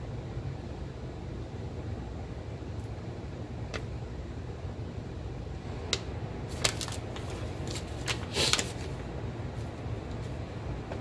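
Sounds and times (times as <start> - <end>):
air conditioner drone: 0.0 - 11.0
paper and plastic packaging crinkling: 6.5 - 9.0.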